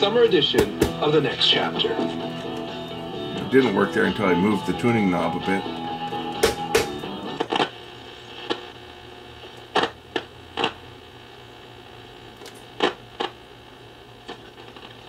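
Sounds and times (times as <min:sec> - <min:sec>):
radio humming off-station: 0:00.0 - 0:15.0
short sharp radio crackles: 0:07.4 - 0:08.8, 0:09.4 - 0:10.8, 0:12.4 - 0:13.4.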